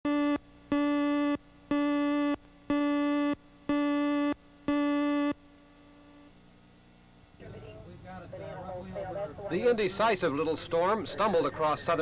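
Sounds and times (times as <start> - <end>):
buzzy countdown beeps: 0.1 - 5.4.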